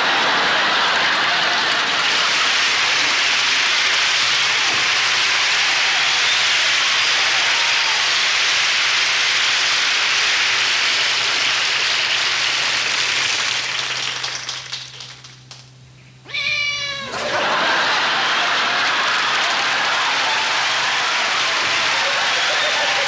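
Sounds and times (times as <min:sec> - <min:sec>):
audience applause: 0:00.0 - 0:15.7, 0:17.1 - 0:23.0
cat meowing: 0:16.2 - 0:17.2.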